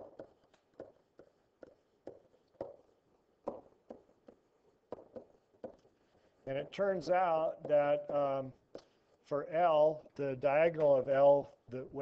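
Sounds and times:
stylus tapping and scraping tablet: 0:00.0 - 0:09.3.

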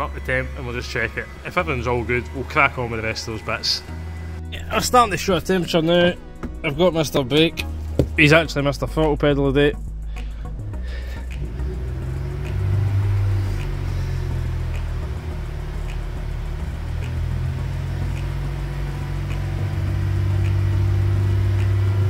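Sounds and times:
faint ticking: 0:09.8 - 0:22.0
car engine at raised revs: 0:10.5 - 0:22.0.

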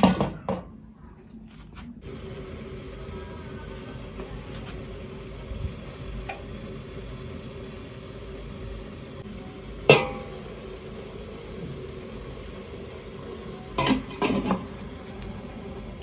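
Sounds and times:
steady low hum: 0:00.8 - 0:16.0
metal pot lid clanking: 0:09.8 - 0:10.4, 0:13.7 - 0:14.7.

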